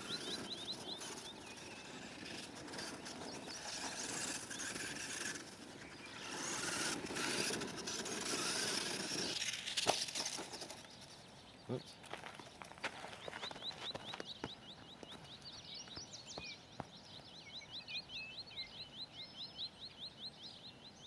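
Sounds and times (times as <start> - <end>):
toy truck electric motor whining: 0.0 - 11.0
tyre and gear noise: 0.0 - 17.0
bird chirping: 0.0 - 21.0.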